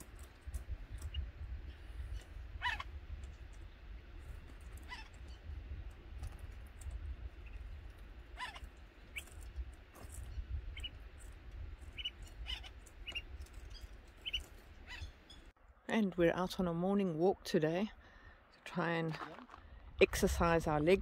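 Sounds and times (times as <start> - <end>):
birds chirping: 0.0 - 15.6.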